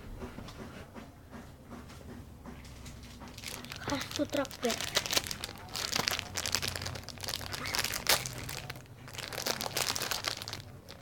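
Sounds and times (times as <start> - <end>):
plastic packaging crinkling: 3.3 - 11.0.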